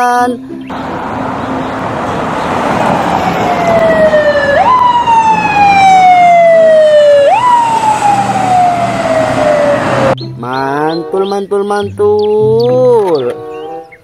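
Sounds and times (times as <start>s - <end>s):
road noise: 0.4s - 14.0s
ambulance siren: 0.7s - 10.2s.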